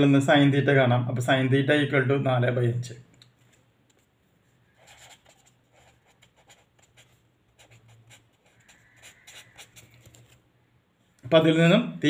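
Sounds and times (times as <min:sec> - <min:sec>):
pen writing on paper: 0:04.7 - 0:10.4.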